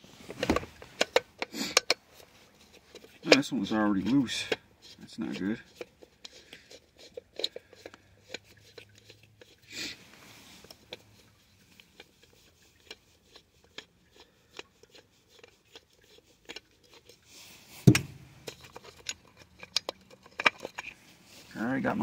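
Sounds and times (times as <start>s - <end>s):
small handling clicks and taps: 0.4s - 2.0s
sharp knock: 17.9s - 18.2s.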